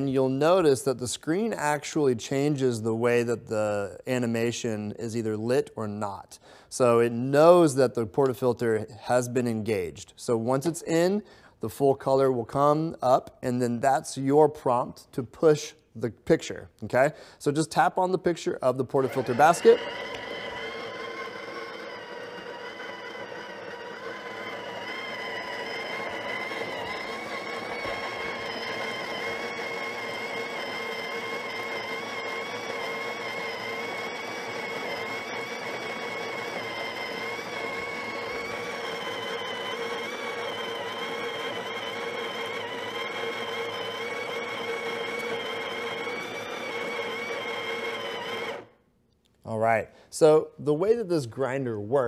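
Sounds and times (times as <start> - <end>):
coffee grinder motor whirring: 18.7 - 48.8.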